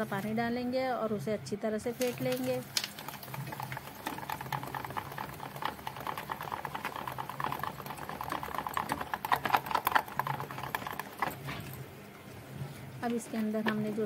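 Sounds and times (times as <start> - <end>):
batter beaten by hand in bowl: 2.0 - 11.8.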